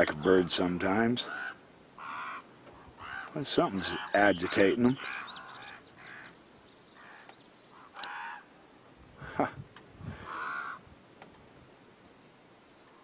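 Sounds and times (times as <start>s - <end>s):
crows cawing: 1.2s - 6.4s, 7.0s - 8.5s, 10.1s - 10.8s.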